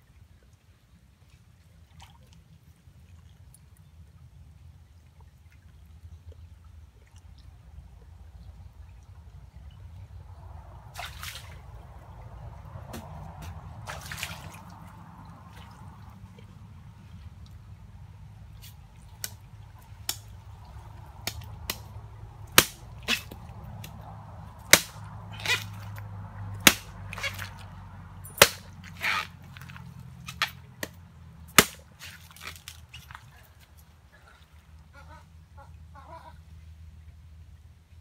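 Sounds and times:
machete chopping: 12.9 - 13.6, 22.5 - 24.0, 24.7 - 26.0, 26.6 - 27.6, 28.3 - 32.8.

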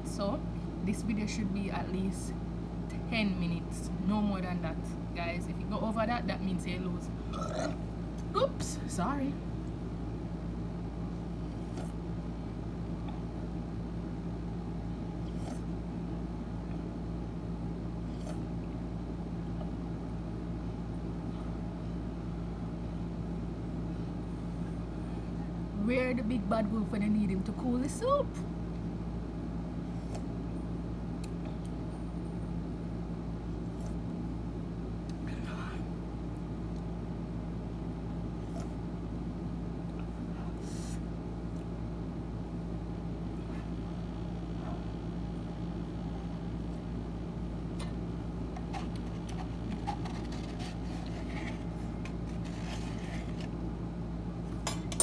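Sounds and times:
low mechanical hum: 0.0 - 55.0
cup handling clicks and scrapes: 48.5 - 53.6.

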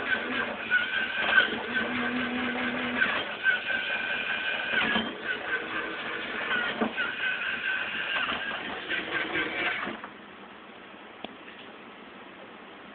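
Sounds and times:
toy motor whining through gears: 0.0 - 9.9.

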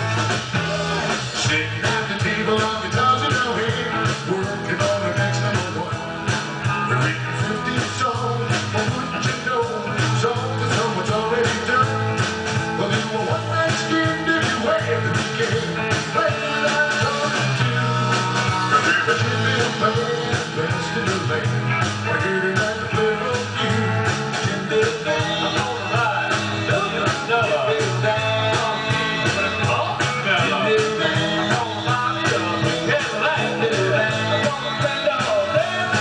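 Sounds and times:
bass guitar: 0.0 - 36.0
drums with steady beat: 0.0 - 36.0
electric guitars: 0.0 - 36.0.

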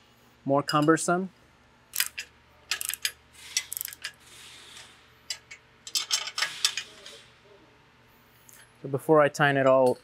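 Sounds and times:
steel nuts and washers clinking: 2.0 - 7.2.

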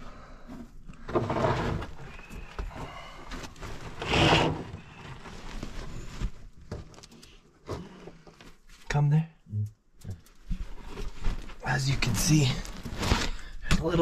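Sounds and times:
rustling against plastic sheet: 3.2 - 7.4, 10.3 - 13.6.

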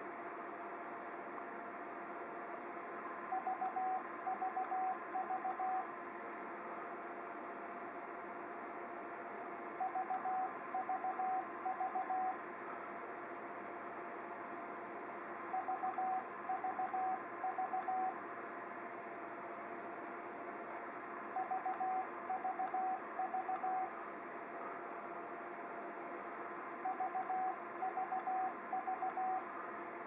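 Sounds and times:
short morse beeps: 3.3 - 5.9, 9.8 - 12.4, 15.5 - 18.2, 21.4 - 23.9, 26.8 - 29.4.

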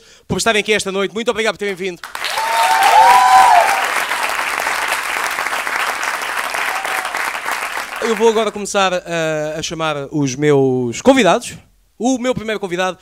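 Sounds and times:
audience applauding: 2.0 - 8.6
pitched cheer: 2.1 - 8.4.

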